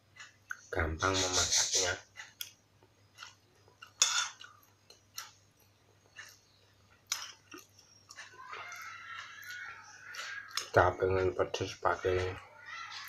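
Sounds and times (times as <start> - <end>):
chewing: 3.2 - 10.8
spoon scraping glass bowl: 4.0 - 4.4.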